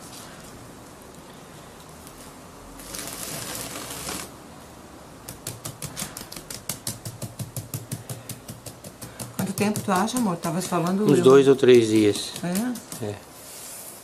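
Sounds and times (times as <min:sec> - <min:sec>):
rustling hiss: 0:00.0 - 0:05.0, 0:11.1 - 0:14.0
hands tapping a cement mould: 0:05.3 - 0:13.2.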